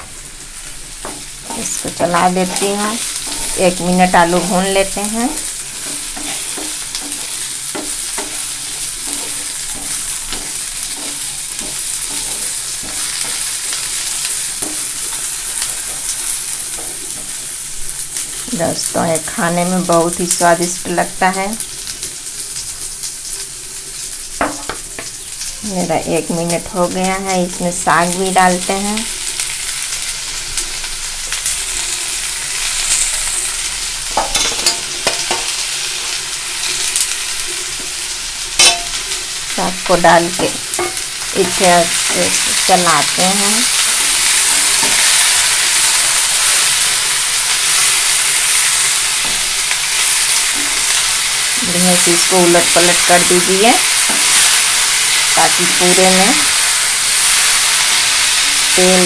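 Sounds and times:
potatoes sizzling in oil: 0.0 - 59.0
wooden spatula scraping pan: 1.0 - 17.4.

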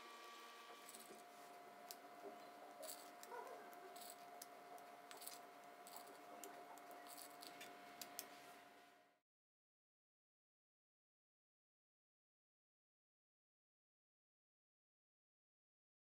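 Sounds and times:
steady hum: 0.0 - 9.2.

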